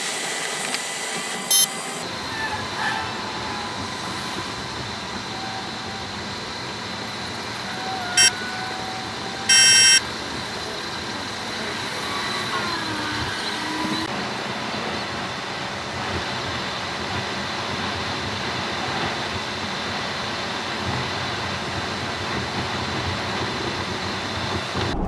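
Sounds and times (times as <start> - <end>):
car tyre and road noise: 0.0 - 25.0
high-pitched beeps: 1.5 - 1.7, 9.5 - 10.0
truck passing drone: 24.7 - 25.0.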